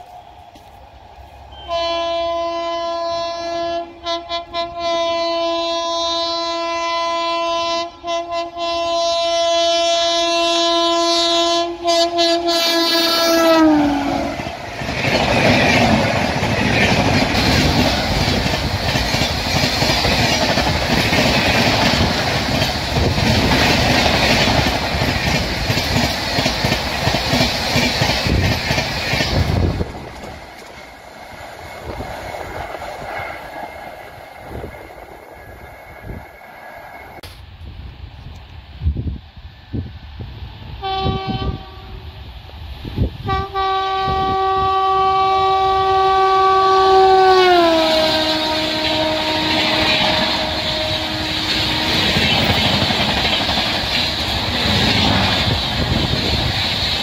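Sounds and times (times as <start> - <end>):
train horn long blast: 1.5 - 14.5, 40.8 - 42.2, 43.2 - 52.6.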